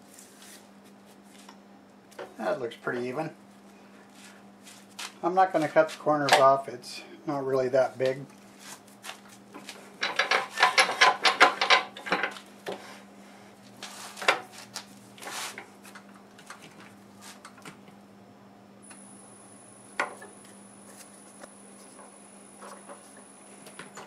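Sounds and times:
faint high whine: 0:18.0 - 0:24.0
low hum: 0:18.0 - 0:24.0.

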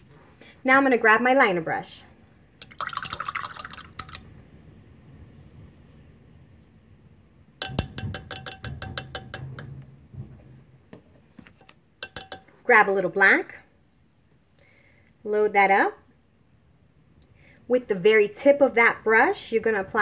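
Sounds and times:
brushes clinking in container: 0:02.6 - 0:04.2, 0:07.6 - 0:09.7, 0:11.5 - 0:12.5.

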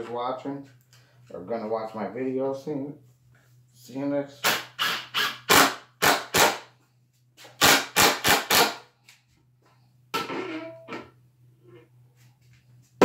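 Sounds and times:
impact driver hammering bursts: 0:04.4 - 0:06.7, 0:07.5 - 0:08.8.

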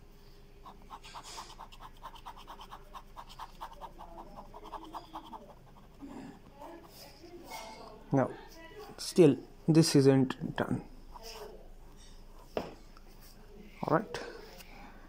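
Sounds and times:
ballpoint pen scratching on paper: 0:00.6 - 0:07.7, 0:11.1 - 0:12.7.

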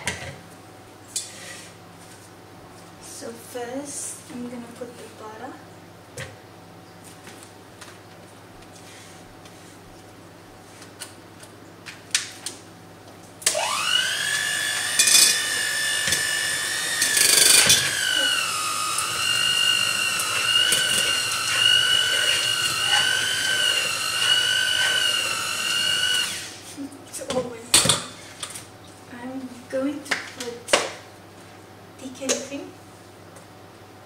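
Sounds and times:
electric mixer whining: 0:13.4 - 0:26.7.

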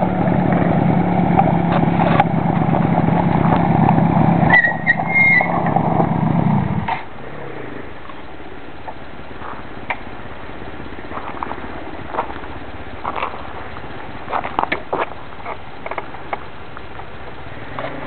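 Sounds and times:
small engine idling: 0:00.0 - 0:18.0.

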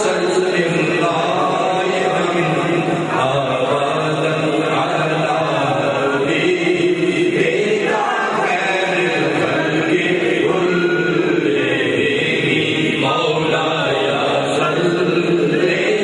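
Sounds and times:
men chanting into microphones: 0:00.0 - 0:16.0.

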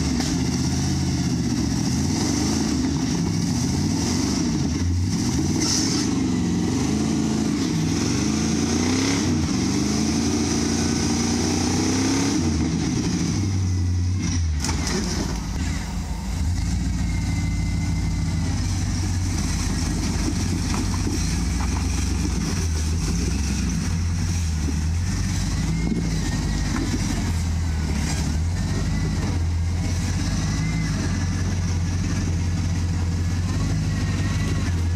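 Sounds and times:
car engine revving: 0:00.0 - 0:34.9.

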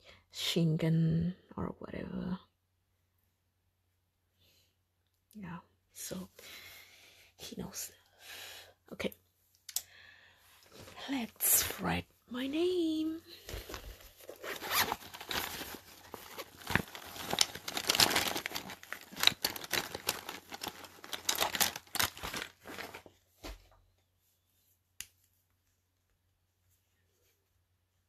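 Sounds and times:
crinkling and rustling: 0:10.6 - 0:24.1.

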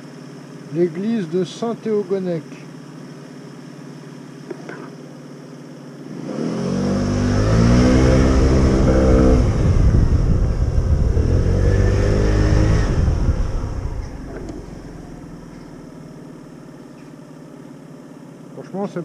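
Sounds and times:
motorcycle engine revving: 0:02.7 - 0:18.0
rushing wind: 0:06.7 - 0:15.2.

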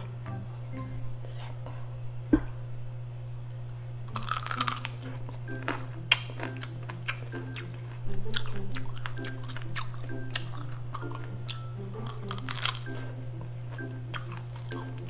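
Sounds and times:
soft background music: 0:00.0 - 0:01.8, 0:04.1 - 0:15.0
chewing and crunching food: 0:04.1 - 0:15.0.

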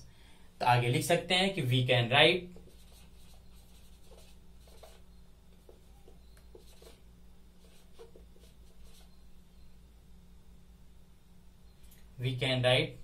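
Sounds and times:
marker pen writing on whiteboard: 0:02.4 - 0:07.0, 0:07.6 - 0:09.1.

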